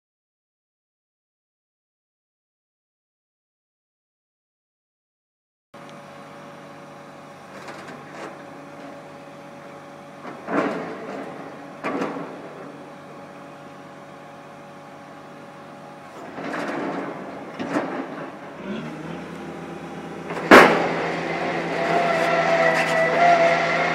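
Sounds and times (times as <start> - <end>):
piling rig engine hum: 5.8 - 23.9
loud knocks of drilling gear: 20.2 - 21.0.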